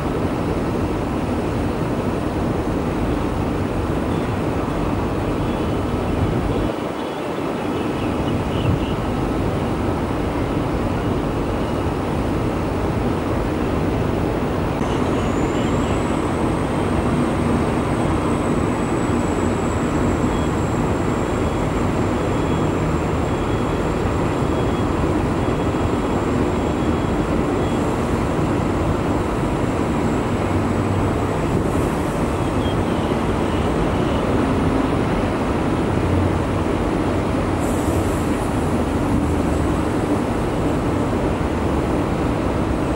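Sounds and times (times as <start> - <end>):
road traffic rumble: 0.0 - 42.9.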